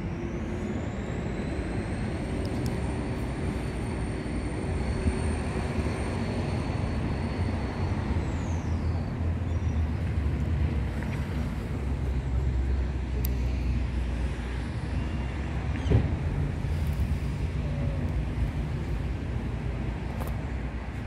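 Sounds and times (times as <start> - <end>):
high-pitched whine: 0.0 - 10.1.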